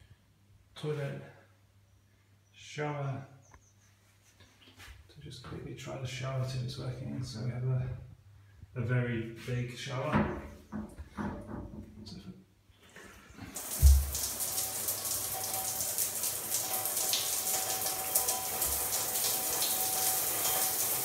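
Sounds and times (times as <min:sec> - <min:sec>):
water thump turning on: 0:13.5 - 0:16.0
shower spray hissing: 0:13.5 - 0:21.0.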